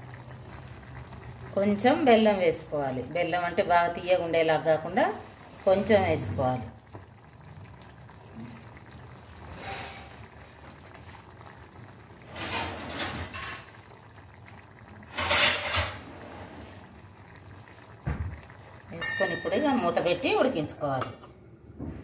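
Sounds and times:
low steady background noise: 0.0 - 22.0
steel cookware clattering: 15.1 - 16.0, 19.0 - 20.0.

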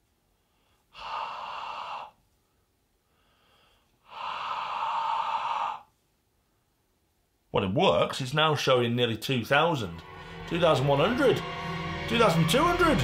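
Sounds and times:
faint breath drawn in: 0.3 - 5.9
man breathing out hard: 0.5 - 2.2, 3.1 - 5.8.

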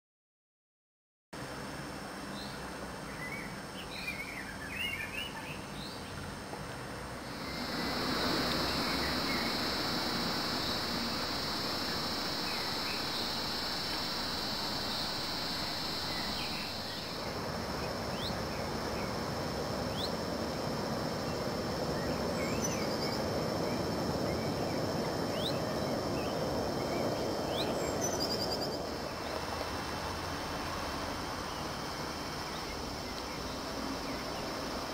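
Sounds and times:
steady rushing water: 5.6 - 34.9
high steady whine: 7.1 - 34.9
small birds chirping: 7.2 - 19.3, 19.9 - 29.5.

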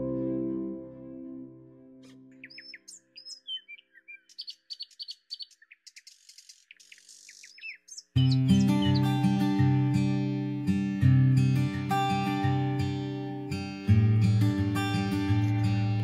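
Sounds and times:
plucked guitar music: 0.0 - 2.4, 8.2 - 16.0
small birds chirping: 2.0 - 10.6.

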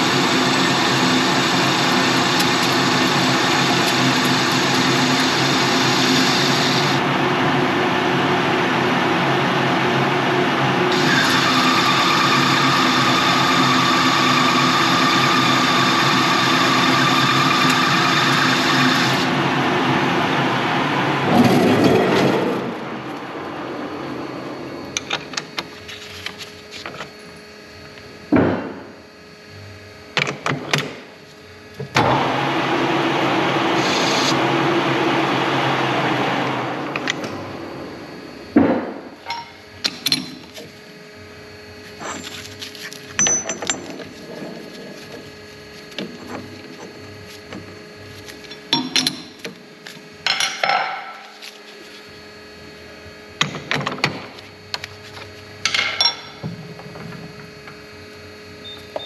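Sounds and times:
steady noisy whirr: 0.0 - 59.0
metal tools clinking and knocking: 43.2 - 44.1.

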